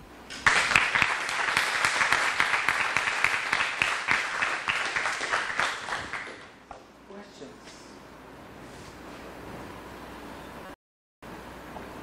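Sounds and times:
audience applauding: 0.4s - 6.6s.

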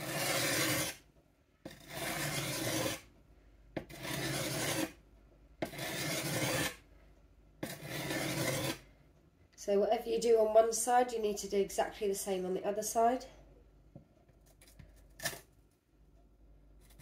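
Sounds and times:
knife scraping on sharpening stone: 0.0s - 1.0s, 1.7s - 3.0s, 3.9s - 5.0s, 5.6s - 6.8s, 7.6s - 8.8s.

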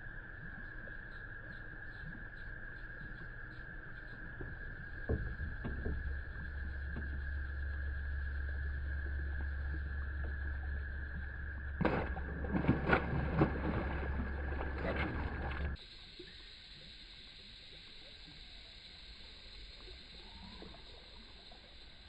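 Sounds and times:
steady hum: 0.0s - 22.0s
fish splashing water: 11.7s - 15.8s.

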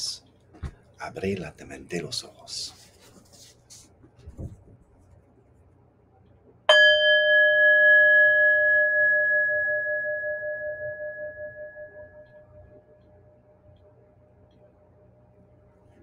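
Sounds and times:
handheld bell ringing: 6.7s - 12.7s.

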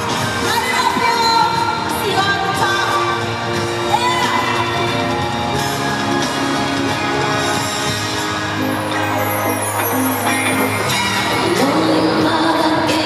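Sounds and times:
loud pop music over sound system: 0.0s - 13.0s
crowd whooping: 4.6s - 13.0s.

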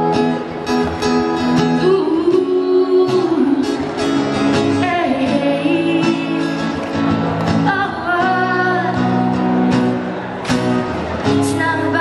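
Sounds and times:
strummed acoustic guitar: 0.0s - 12.0s
woman singing into a microphone: 1.6s - 6.8s, 7.5s - 9.4s, 11.3s - 12.0s.

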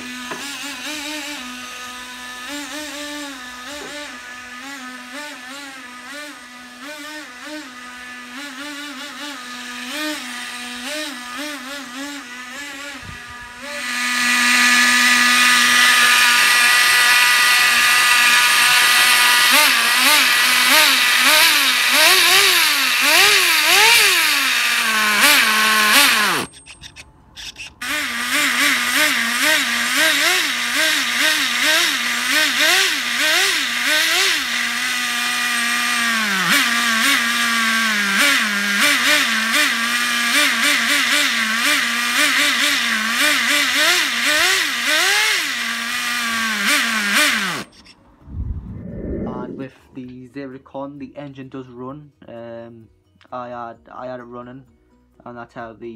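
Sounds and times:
nitro engine revving: 0.0s - 49.7s.

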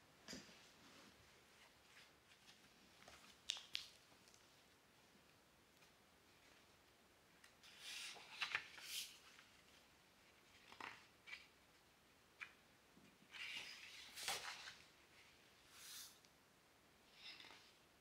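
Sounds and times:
book pages rustling: 0.6s - 4.5s, 7.4s - 11.8s, 13.2s - 15.2s.

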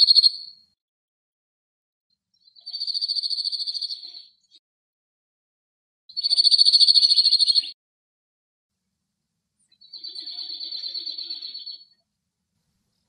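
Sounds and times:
bird singing fast trill: 2.4s - 4.4s, 6.1s - 7.8s, 9.7s - 12.0s.

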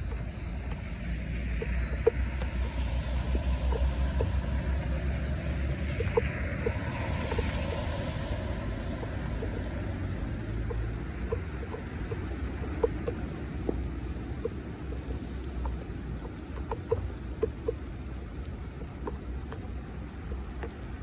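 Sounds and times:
truck splashing through water: 0.0s - 16.4s
heavy rain and floodwater rushing: 0.0s - 21.0s
wind buffeting microphone: 0.0s - 21.0s.

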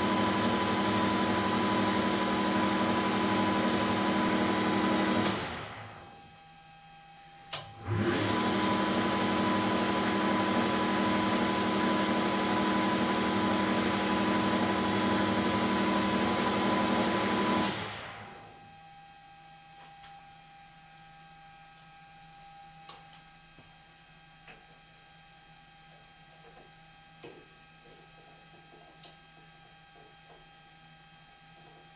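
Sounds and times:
lathe spindle spinning down: 0.0s - 6.0s
lathe humming and whining: 0.0s - 6.2s, 7.7s - 18.7s.

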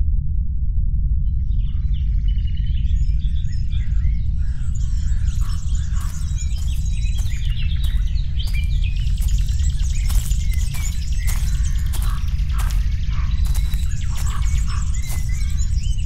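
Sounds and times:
steady low rumble: 0.0s - 16.0s
birds chirping and singing: 1.6s - 16.0s
footsteps through dry undergrowth: 4.6s - 16.0s.

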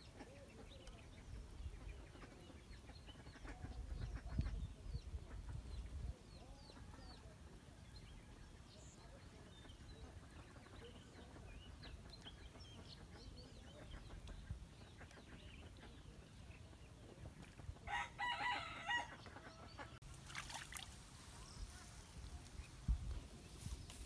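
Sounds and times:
small birds chirping: 0.0s - 24.0s
rooster crowing: 17.9s - 19.1s.

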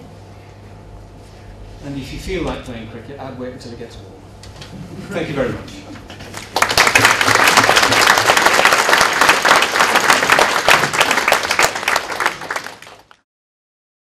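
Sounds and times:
audience applauding: 6.3s - 13.2s.

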